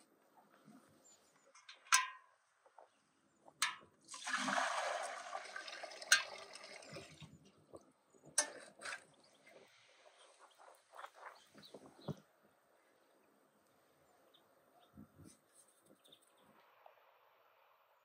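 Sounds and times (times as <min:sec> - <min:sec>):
water pouring into metal pot: 0:04.1 - 0:07.5.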